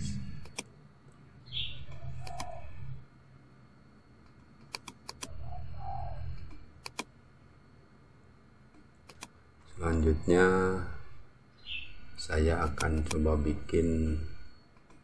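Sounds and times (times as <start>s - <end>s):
low hum: 0.0s - 15.0s
computer mouse clicks: 0.4s - 1.2s, 1.8s - 2.6s, 4.2s - 5.4s, 6.3s - 7.1s, 8.7s - 9.4s, 12.6s - 13.2s, 14.7s - 15.0s.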